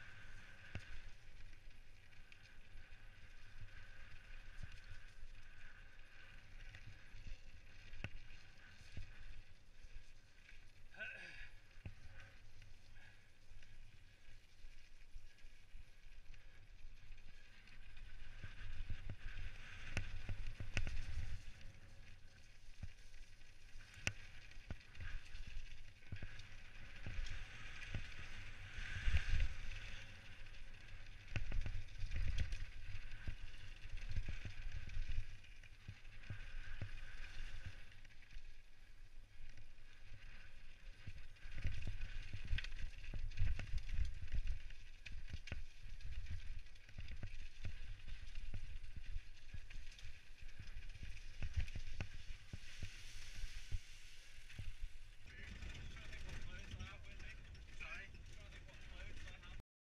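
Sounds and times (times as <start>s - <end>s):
bike tyres on dirt and gravel: 0.0s - 59.6s
wind rumble on microphone: 23.8s - 38.1s, 39.2s - 59.6s.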